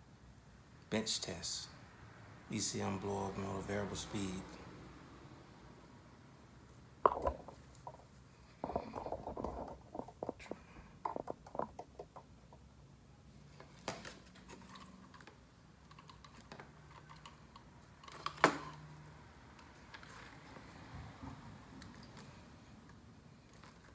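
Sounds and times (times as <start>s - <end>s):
clicks and rattles of wiring handled: 13.6s - 18.8s.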